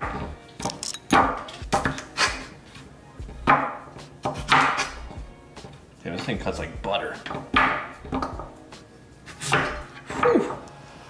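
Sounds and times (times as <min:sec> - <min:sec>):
knife chopping on wooden board: 0:03.4 - 0:05.0, 0:07.3 - 0:08.5, 0:09.4 - 0:09.8.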